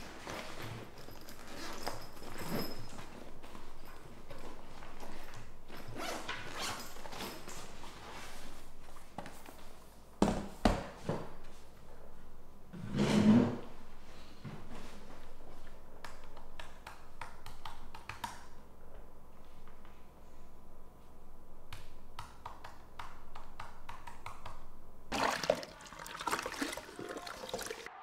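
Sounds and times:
tap water running over hands: 25.2 - 27.9.

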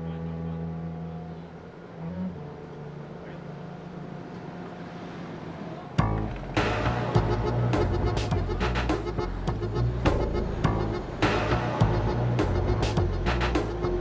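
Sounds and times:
heavy machinery drone: 0.0 - 14.0.

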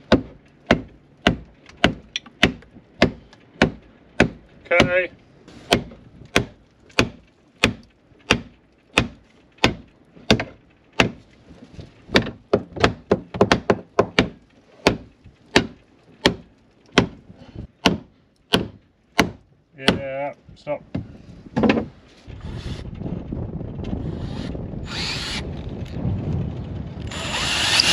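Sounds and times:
hammer striking wood: 0.1 - 5.0, 5.7 - 11.2, 12.1 - 17.2, 17.8 - 20.0.

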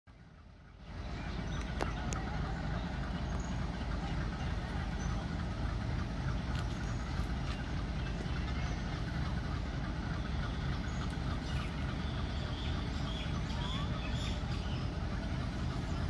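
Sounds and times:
diesel locomotive engine rumbling: 0.1 - 16.0.

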